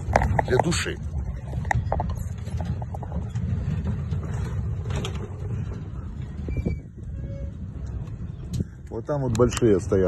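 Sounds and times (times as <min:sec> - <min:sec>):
faint clicks and knocks: 0:00.0 - 0:05.8
wind buffeting microphone: 0:00.0 - 0:10.0.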